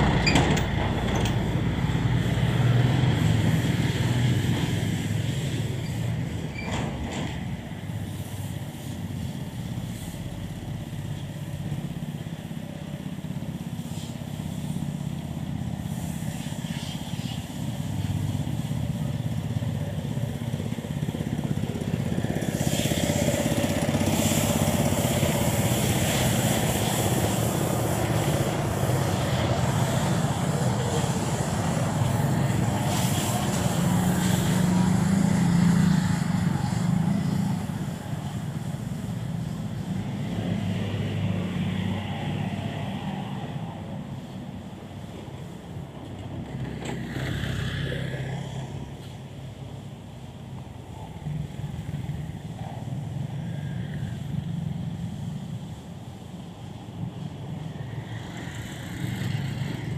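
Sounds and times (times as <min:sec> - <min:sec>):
motor scooters passing: 0:00.0 - 0:59.9
street traffic: 0:00.0 - 0:59.9
motorcycle passing close: 0:16.7 - 0:43.8, 0:46.4 - 0:49.3, 0:50.0 - 0:55.9.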